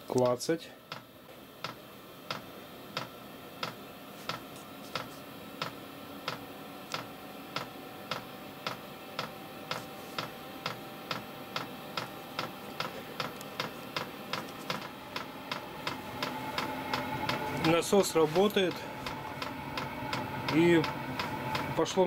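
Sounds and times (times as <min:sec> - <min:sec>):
blower fan humming: 0:00.0 - 0:22.0.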